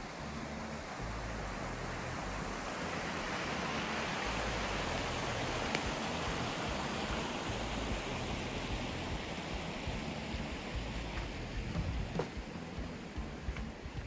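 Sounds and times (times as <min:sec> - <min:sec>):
river rushing: 0:00.0 - 0:14.0.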